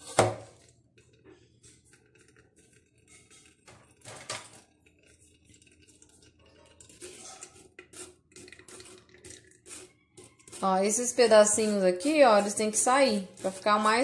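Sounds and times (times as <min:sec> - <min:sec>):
metal spoon scraping in a sieve: 0:01.6 - 0:14.0.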